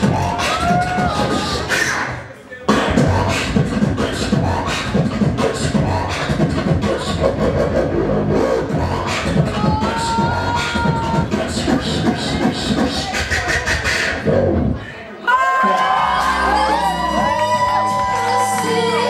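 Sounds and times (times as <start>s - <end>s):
beatboxing into a microphone: 0.0s - 15.0s.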